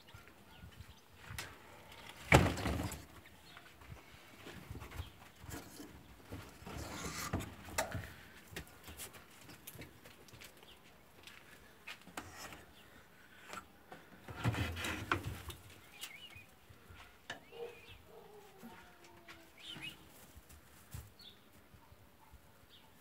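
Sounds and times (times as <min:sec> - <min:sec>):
small birds chirping: 0:00.0 - 0:02.2, 0:03.1 - 0:07.2, 0:12.4 - 0:14.2, 0:15.5 - 0:23.0.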